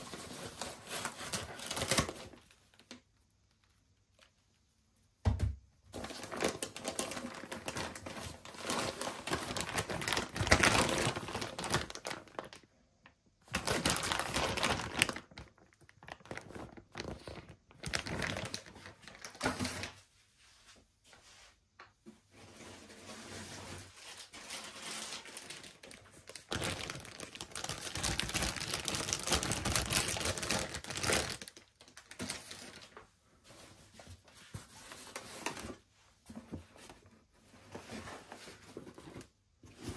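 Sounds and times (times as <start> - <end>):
plastic wrap crinkling: 0.0 - 4.5, 6.0 - 20.0, 24.6 - 33.1.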